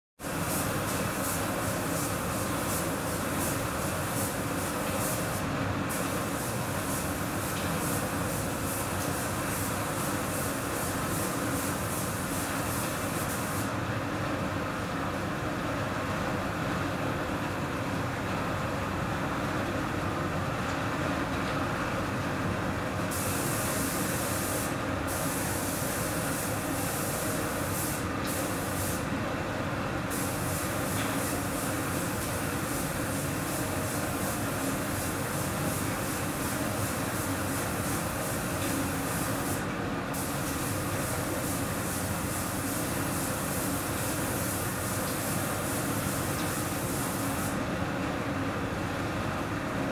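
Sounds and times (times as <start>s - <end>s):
air spray gun hissing: 0.2s - 13.7s, 23.1s - 29.1s, 30.1s - 47.6s.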